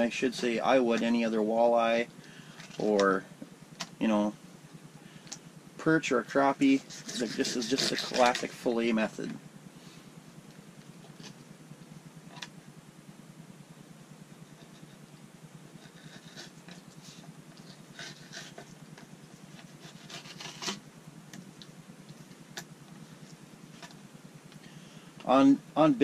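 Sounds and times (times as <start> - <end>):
low hum: 0.0 - 26.0
knife scraping fish: 6.8 - 8.4.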